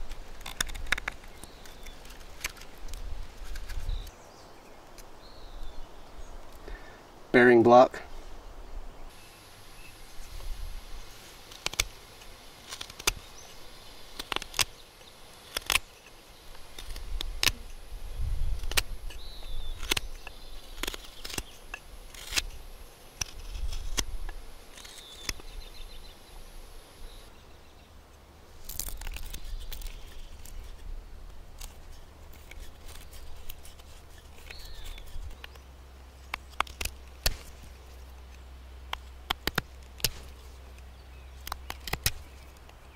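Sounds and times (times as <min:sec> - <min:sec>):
knife whittling wood: 0:31.6 - 0:35.5.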